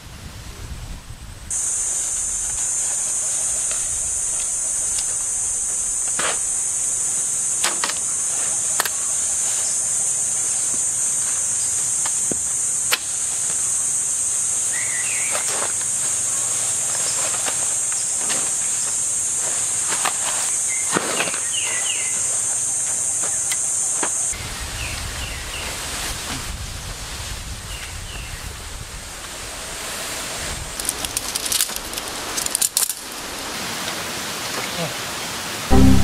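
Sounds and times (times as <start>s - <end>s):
low wind rumble: 0.0s - 1.5s
high-pitched insect chorus: 1.5s - 26.0s, 29.6s - 33.8s
short chirp: 35.7s - 36.0s.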